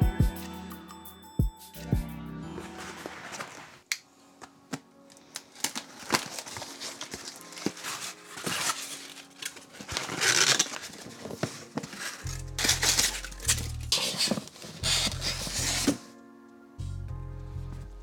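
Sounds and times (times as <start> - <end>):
background music: 0.0 - 18.0
cardboard flaps scraping and tearing: 2.6 - 3.8, 5.5 - 16.1
plastic mailer crinkling: 5.1 - 16.1.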